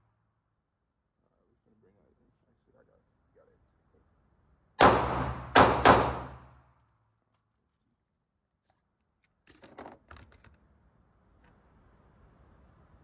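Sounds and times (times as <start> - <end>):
pistol shots echoing: 4.8 - 6.5.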